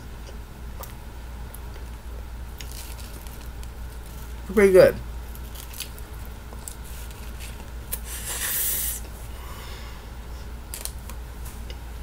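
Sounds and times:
steady low hum: 0.0s - 12.0s
short hissing noise: 7.9s - 9.1s.

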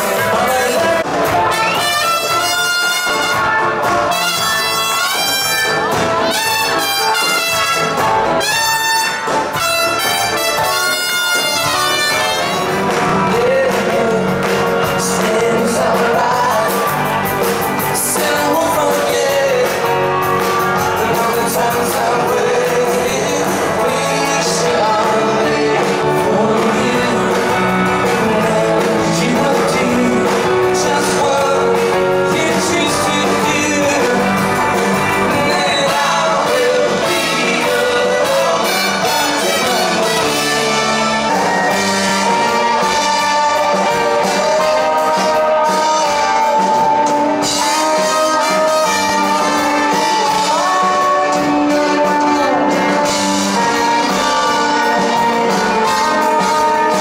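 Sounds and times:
person singing: 0.0s - 3.4s, 4.0s - 57.0s
drums: 0.0s - 57.0s
electric guitar: 0.0s - 57.0s
trumpets: 0.2s - 13.1s, 34.8s - 57.0s.

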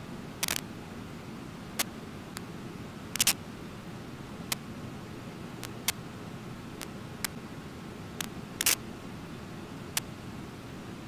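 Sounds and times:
sharp clicks: 0.4s - 0.6s, 3.2s - 3.4s, 5.6s - 6.0s, 8.2s - 8.8s.

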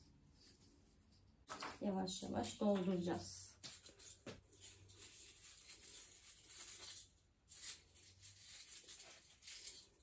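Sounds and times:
rustling of artificial tree branches: 0.0s - 10.0s.

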